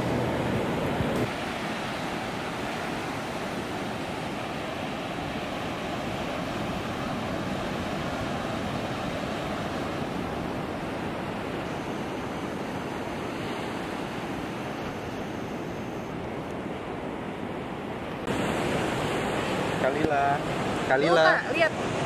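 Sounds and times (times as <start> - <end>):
waves breaking on beach: 0.0 - 22.0.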